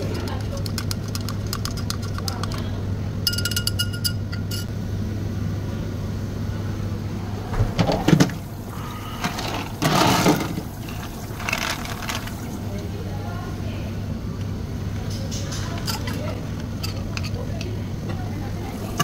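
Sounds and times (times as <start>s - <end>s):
steady low hum: 0.0s - 19.0s
spoon clinking against glass: 3.3s - 4.7s
plastic scoop scraping ice cubes: 11.4s - 12.4s.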